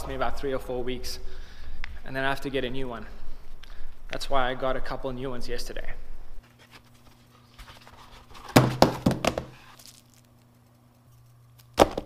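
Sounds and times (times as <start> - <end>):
faint steady hum: 0.0 - 12.0
notebook dropped into drawer: 8.4 - 10.0
box knocking on wooden desk: 8.5 - 9.6.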